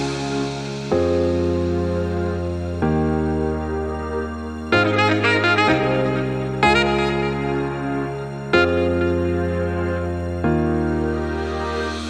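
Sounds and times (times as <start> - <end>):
melodic background music: 0.0 - 12.0.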